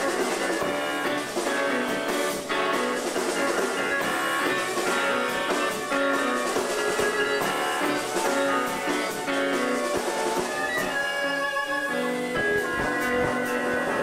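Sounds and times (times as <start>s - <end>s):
drum and cymbal hits: 0.0s - 11.4s
piano: 0.0s - 14.0s
bowed violins: 3.9s - 14.0s.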